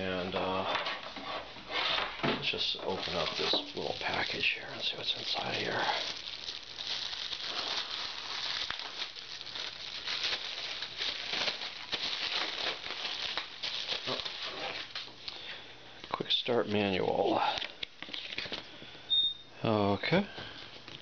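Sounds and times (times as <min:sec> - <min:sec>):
plastic bag crinkling: 0:02.4 - 0:15.5
paper manuals pulled out: 0:02.5 - 0:15.1.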